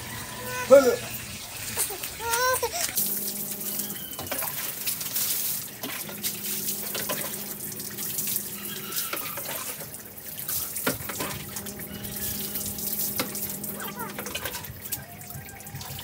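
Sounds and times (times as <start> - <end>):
water dripping: 0.0 - 16.0
water splashing onto ground: 0.6 - 16.0.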